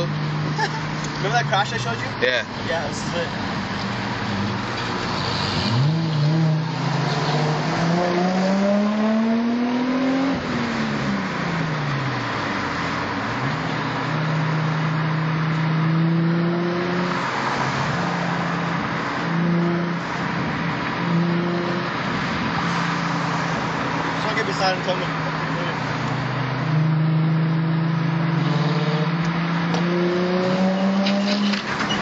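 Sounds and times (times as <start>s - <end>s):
car engine revving: 0.0s - 32.0s
road noise: 0.0s - 32.0s.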